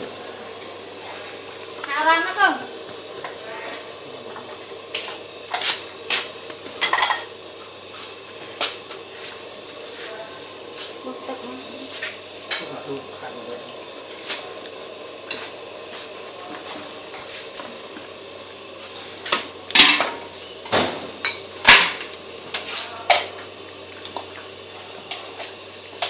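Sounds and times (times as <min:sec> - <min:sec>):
utensils clinking against dishes: 0:06.8 - 0:07.3.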